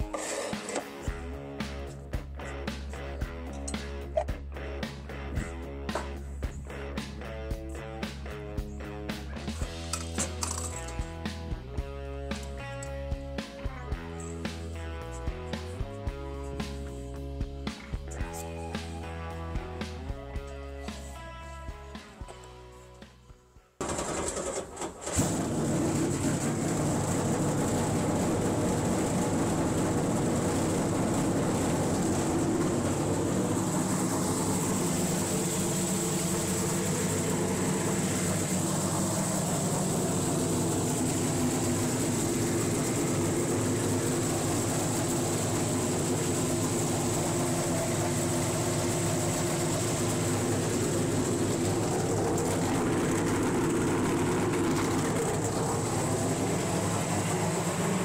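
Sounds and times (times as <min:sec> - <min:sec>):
race car engine idling: 0:25.2 - 0:58.0.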